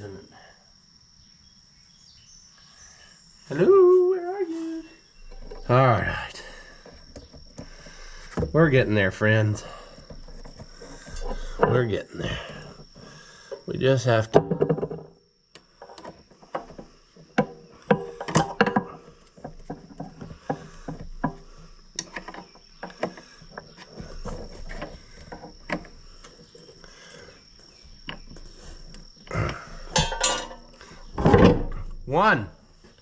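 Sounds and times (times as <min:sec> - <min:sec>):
metal tools clinking: 0:29.9 - 0:30.8.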